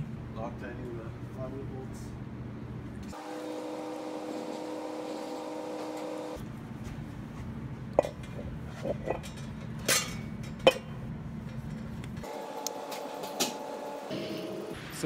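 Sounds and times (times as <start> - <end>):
steady hum: 0.0 - 15.0
metallic clinks and clanks: 8.0 - 12.0.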